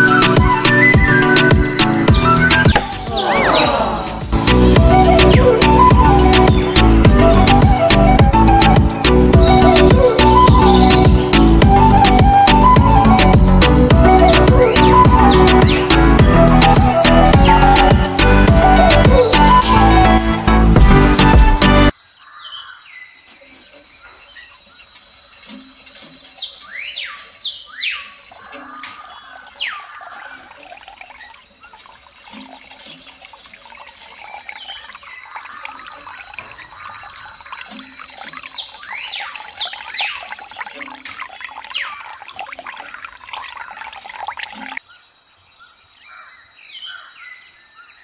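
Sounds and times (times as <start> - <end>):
birds chirping: 0.0 - 13.1, 14.0 - 19.7, 22.1 - 48.0
water trickling down metal channel: 28.2 - 44.8.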